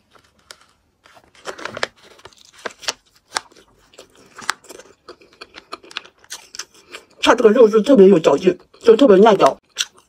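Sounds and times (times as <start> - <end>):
person chewing meat: 3.1 - 7.2, 9.6 - 10.0.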